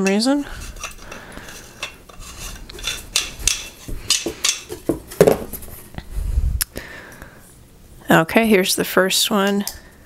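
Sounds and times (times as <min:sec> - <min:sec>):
metal parts scraping: 0:00.4 - 0:04.9.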